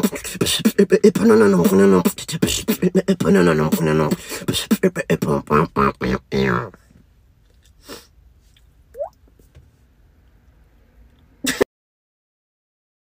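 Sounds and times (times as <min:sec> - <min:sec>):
beatboxing: 0:00.0 - 0:06.8.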